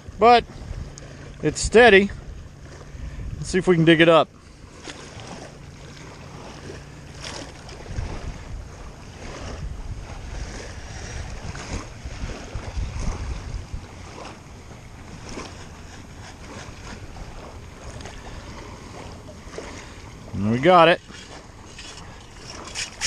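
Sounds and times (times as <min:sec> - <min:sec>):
water splashes: 0:00.0 - 0:23.0
wind rumble on microphone: 0:00.0 - 0:23.0
metal scoop digging wet sand: 0:15.2 - 0:17.5, 0:20.8 - 0:23.0.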